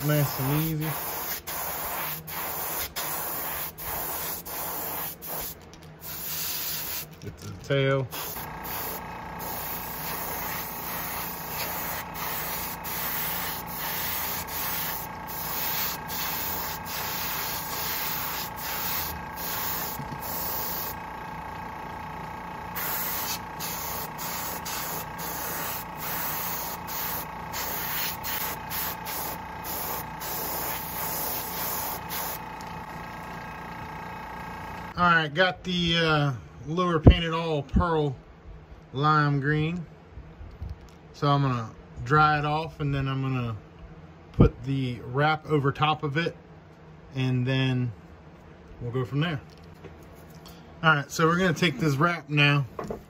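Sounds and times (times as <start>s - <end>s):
airbrush spraying bursts: 0.0s - 7.2s, 8.1s - 21.0s, 22.7s - 32.7s.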